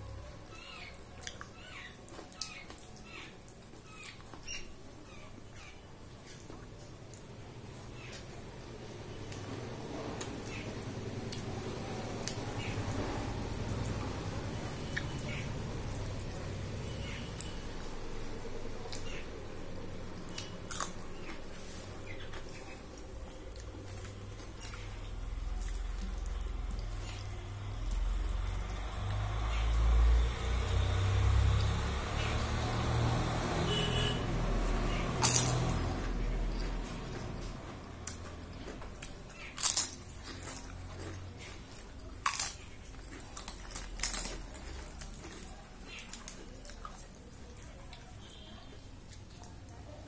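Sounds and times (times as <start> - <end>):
mouth clicks and chewing: 0.4 - 4.7, 20.0 - 29.3, 34.8 - 50.0
crisp crunching of papad: 35.2 - 47.4.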